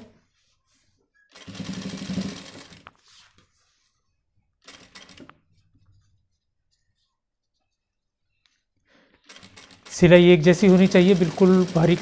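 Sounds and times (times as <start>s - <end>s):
sewing machine running: 1.4s - 2.8s, 9.3s - 12.0s.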